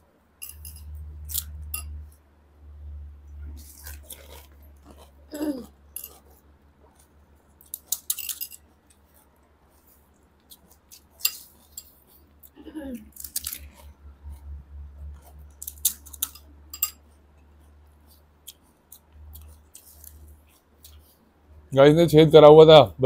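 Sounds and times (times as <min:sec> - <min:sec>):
low steady hum: 0:00.0 - 0:23.0
chewing: 0:03.3 - 0:21.2
vocal murmur: 0:05.3 - 0:05.8
light clinks on steel plates: 0:16.2 - 0:17.0.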